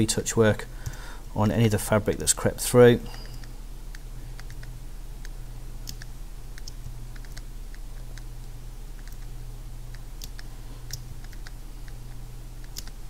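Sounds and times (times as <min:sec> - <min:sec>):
steady low hum: 0:00.0 - 0:13.0
computer keyboard and mouse clicks: 0:03.2 - 0:08.3, 0:09.0 - 0:09.3, 0:09.9 - 0:13.0.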